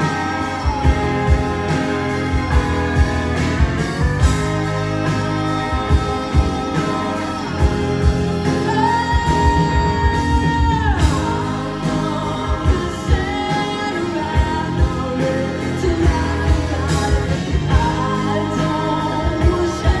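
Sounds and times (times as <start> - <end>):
live rock band playing: 0.0 - 20.0
woman singing: 5.6 - 20.0.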